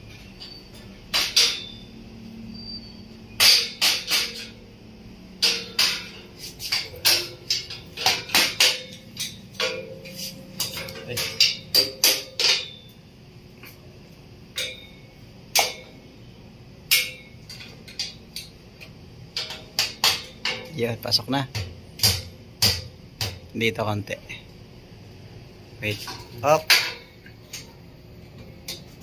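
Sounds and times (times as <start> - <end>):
hammer striking metal grill: 0.4 - 2.0, 3.3 - 4.6, 5.4 - 13.0, 14.5 - 16.0, 16.9 - 18.6, 19.3 - 23.5, 25.8 - 27.8.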